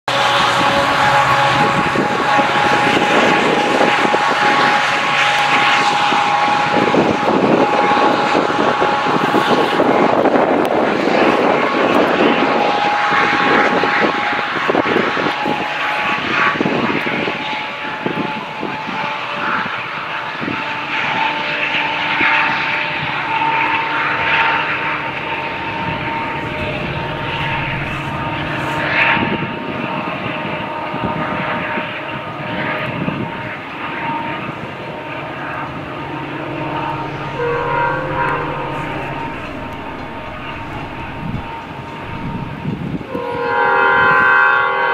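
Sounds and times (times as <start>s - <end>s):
diesel locomotive engine drone: 0.0s - 44.9s
steady whine: 23.5s - 29.7s, 33.8s - 43.3s.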